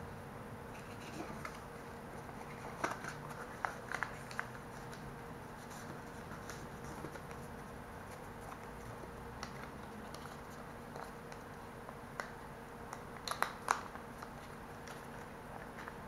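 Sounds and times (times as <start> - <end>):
packaging clicking and crinkling: 2.2 - 5.0, 12.2 - 16.0.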